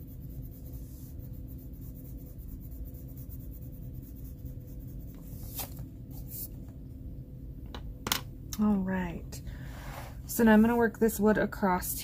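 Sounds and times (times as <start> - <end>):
colored pencil scratching on paper: 0.0 - 6.5.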